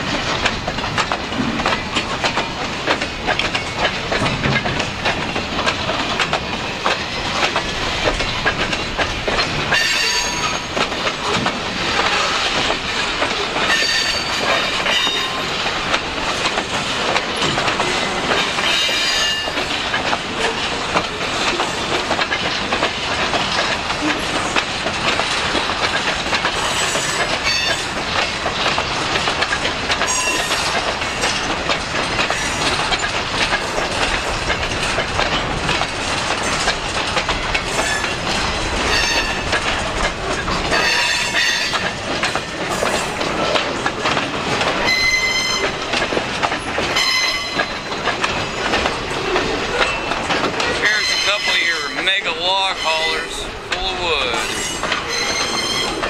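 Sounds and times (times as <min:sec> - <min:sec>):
freight train wheels rumbling: 0:00.0 - 0:56.0
wheel squeals: 0:09.7 - 0:10.7, 0:13.7 - 0:15.4, 0:17.4 - 0:19.7, 0:26.6 - 0:27.9, 0:30.1 - 0:31.4, 0:38.8 - 0:39.5, 0:40.4 - 0:43.5, 0:44.8 - 0:45.8, 0:46.6 - 0:53.5, 0:54.4 - 0:56.0.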